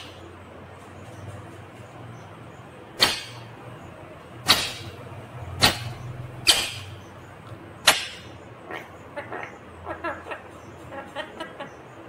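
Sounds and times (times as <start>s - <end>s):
parrot harsh calls: 8.7s - 11.6s.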